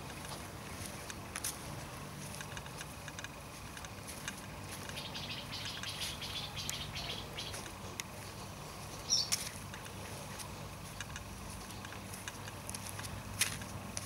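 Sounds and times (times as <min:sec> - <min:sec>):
small birds chirping: 0:02.2 - 0:13.0.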